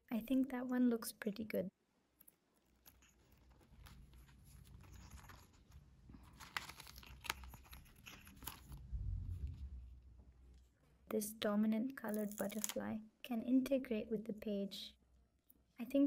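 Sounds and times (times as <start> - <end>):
paper and plastic sheets rustling: 2.6 - 9.7.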